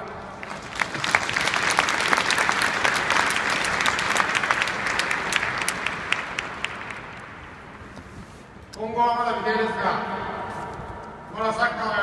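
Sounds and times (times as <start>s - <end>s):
stadium crowd applauding: 0.0s - 7.6s.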